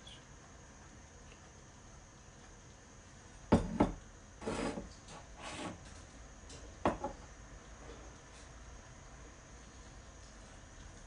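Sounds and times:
glass jar knocking on countertop: 3.5s - 4.0s
bowl scraping on countertop: 3.6s - 6.0s.

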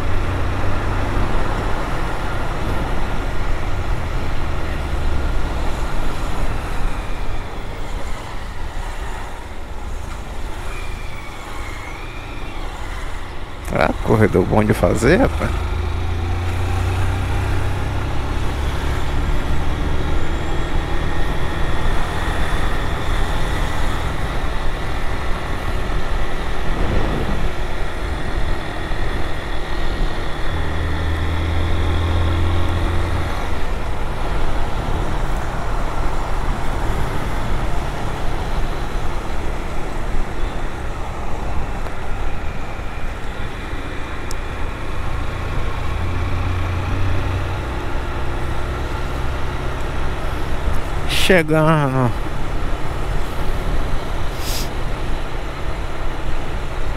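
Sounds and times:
city traffic noise: 0.0s - 56.9s
deeper engine drone: 12.8s - 56.9s.

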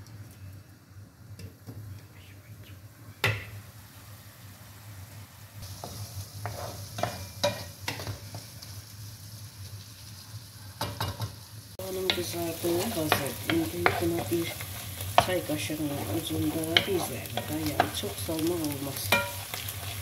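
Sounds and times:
onions sizzling in a pan: 0.0s - 20.0s
wooden spoon scraping a pan: 5.7s - 8.7s, 11.9s - 20.0s.

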